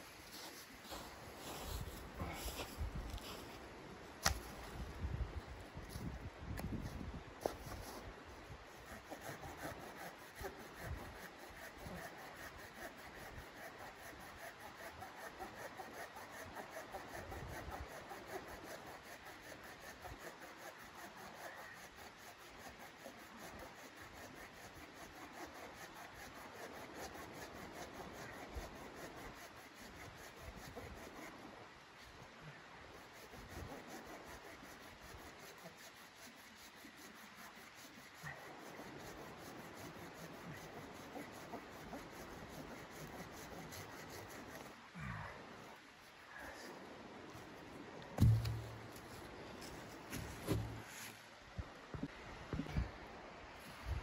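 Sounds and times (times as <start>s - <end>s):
hand saw cutting a log: 8.6s - 31.4s, 33.0s - 44.7s, 48.2s - 51.2s.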